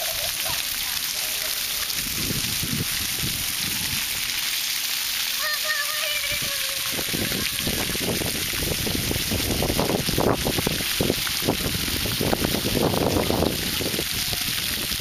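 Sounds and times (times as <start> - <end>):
fountain jets hissing: 0.0 - 15.0
wind buffeting microphone: 1.8 - 4.3, 6.1 - 15.0.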